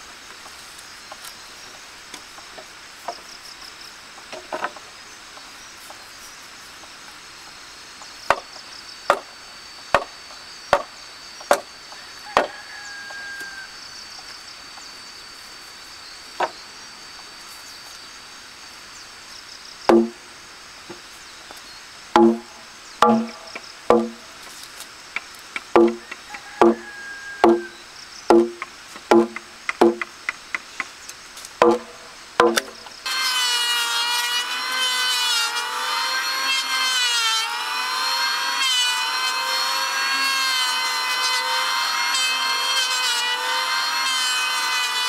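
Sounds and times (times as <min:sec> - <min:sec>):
insects chirring: 0:00.0 - 0:45.0
wooden mallet striking timber: 0:19.9 - 0:20.2, 0:22.2 - 0:24.2, 0:25.6 - 0:26.8, 0:27.4 - 0:30.4, 0:31.6 - 0:32.8.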